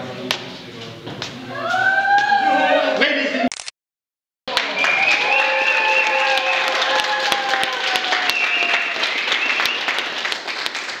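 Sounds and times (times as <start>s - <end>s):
cheering voices: 1.5s - 3.5s, 4.5s - 10.0s
audience applauding: 4.5s - 11.0s.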